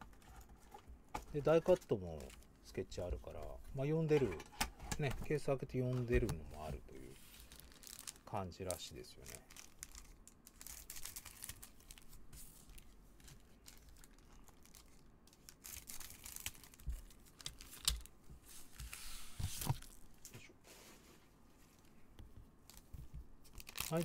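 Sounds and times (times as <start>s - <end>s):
foil wrappers crinkling: 5.8s - 18.9s, 23.5s - 24.0s.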